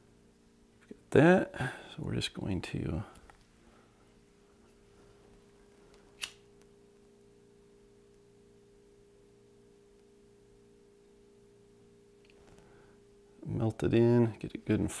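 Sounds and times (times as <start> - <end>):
faint low hum: 0.0 - 15.0
lighter click: 6.2 - 6.4.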